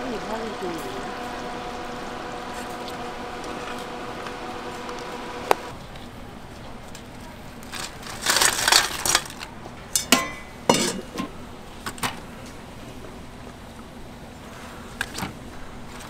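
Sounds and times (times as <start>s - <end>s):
broth sloshing: 0.0s - 5.8s
metal clanks against pot: 10.0s - 11.3s.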